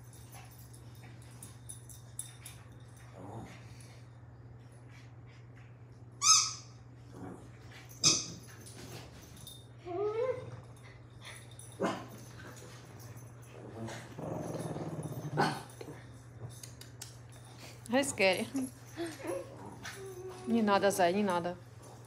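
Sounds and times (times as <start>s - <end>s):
dog growling: 3.1s - 3.8s, 7.1s - 7.7s, 13.5s - 16.2s, 19.2s - 20.6s
dog whining: 9.8s - 10.6s, 19.0s - 20.6s.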